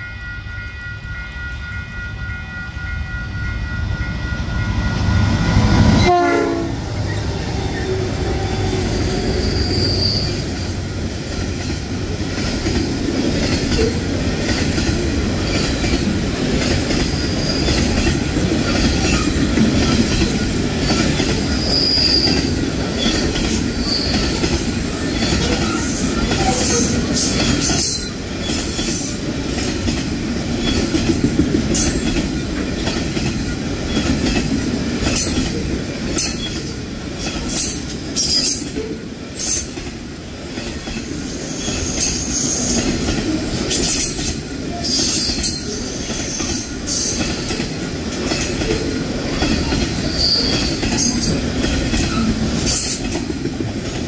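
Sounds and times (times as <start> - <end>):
train wheels rolling on rails: 0.0 - 54.0
high-pitched wheel squeals: 7.1 - 10.6, 21.5 - 23.2.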